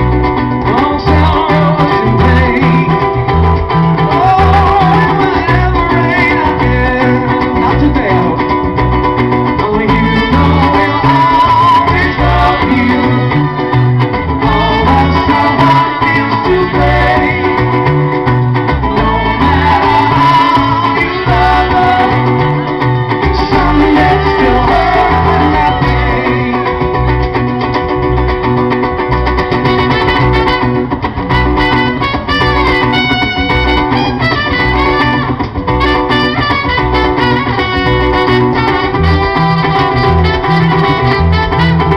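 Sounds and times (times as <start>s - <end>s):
cajon: 0.0s - 41.9s
electric bass line: 0.0s - 41.9s
plucked strings: 0.0s - 41.9s
strummed acoustic guitar: 0.0s - 41.9s
trumpet melody: 18.9s - 27.2s, 29.4s - 41.9s.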